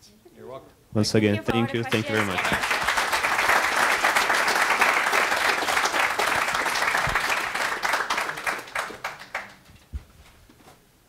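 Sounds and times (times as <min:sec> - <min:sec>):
audience applauding: 0:01.7 - 0:09.7.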